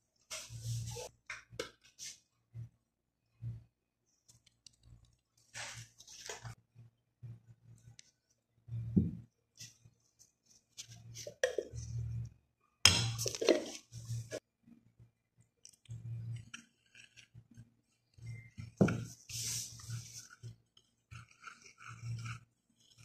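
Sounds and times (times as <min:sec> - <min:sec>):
wooden spoon scraping ceramic bowl: 0:18.2 - 0:23.0.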